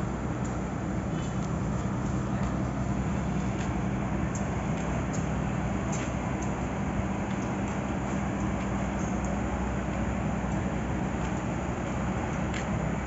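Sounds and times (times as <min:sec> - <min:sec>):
low drone of standing trains: 0:00.0 - 0:13.0
faint light ticks: 0:03.5 - 0:05.3, 0:05.9 - 0:11.5, 0:12.3 - 0:12.8.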